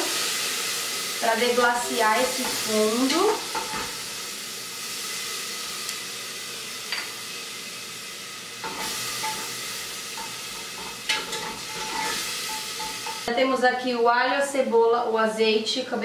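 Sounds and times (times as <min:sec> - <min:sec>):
water and oil sizzling: 0:00.0 - 0:16.0.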